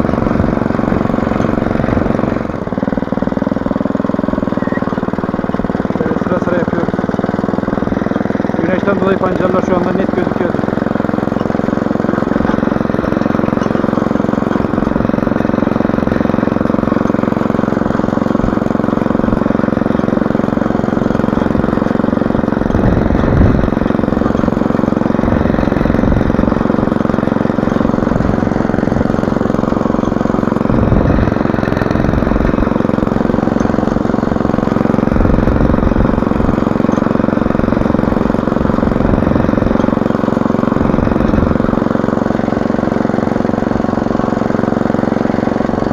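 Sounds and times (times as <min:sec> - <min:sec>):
small petrol engine running: 0:00.0 - 0:45.9
tines cutting through soil: 0:00.0 - 0:45.9
wind rumbling on microphone: 0:22.7 - 0:23.8, 0:30.7 - 0:31.4.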